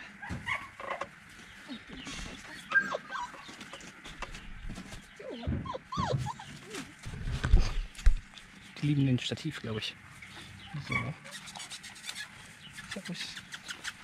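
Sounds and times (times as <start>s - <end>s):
puppies whimpering and yipping: 1.7s - 4.0s, 5.1s - 7.1s, 10.7s - 12.4s.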